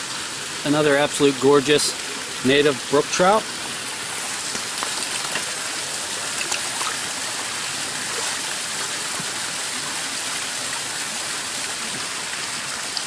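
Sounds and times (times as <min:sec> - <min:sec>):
brook rushing over stones: 0:03.7 - 0:09.9.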